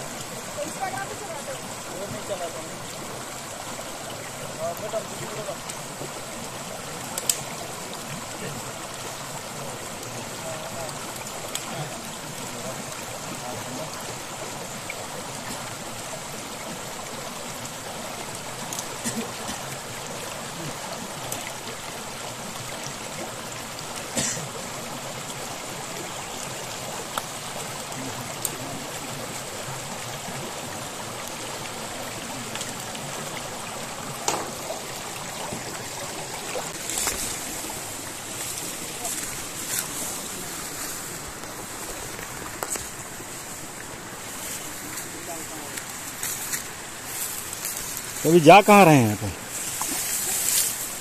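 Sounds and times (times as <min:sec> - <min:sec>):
stream running over rocks: 0:00.0 - 0:51.0.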